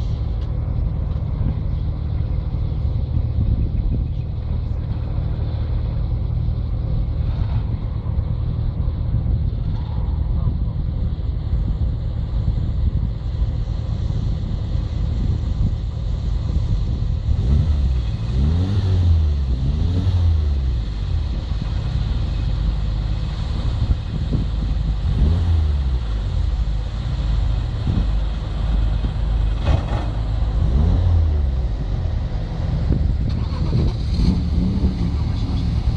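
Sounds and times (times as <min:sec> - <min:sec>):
car engine accelerating: 0:13.7 - 0:35.9.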